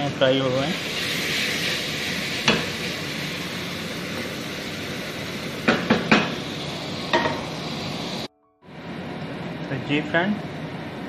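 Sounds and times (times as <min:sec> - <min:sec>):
food sizzling: 0:00.0 - 0:11.0
metal knocks on cooking pot: 0:05.7 - 0:06.3.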